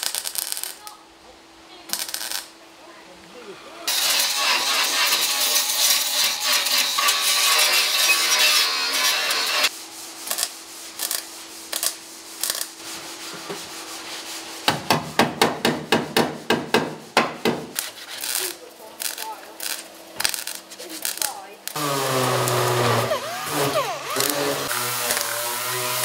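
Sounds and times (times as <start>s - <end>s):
welder crackling: 0.0s - 1.0s, 1.9s - 2.6s, 3.8s - 13.7s, 17.6s - 26.0s
angle grinder grinding metal: 3.8s - 9.7s, 18.1s - 26.0s.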